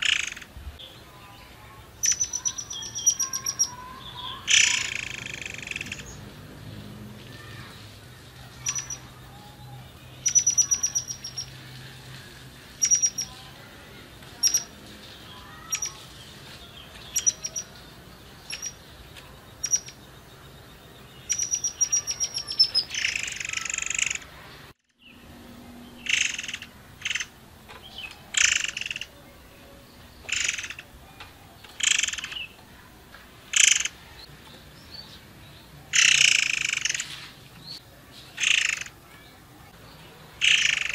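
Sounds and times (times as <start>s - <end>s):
rough bird calls: 0.0s - 1.0s, 2.0s - 25.2s, 25.9s - 29.2s, 30.0s - 35.2s, 35.9s - 39.3s, 40.3s - 40.9s
bird singing whistled trills: 2.0s - 6.1s, 8.6s - 11.6s, 20.8s - 23.7s.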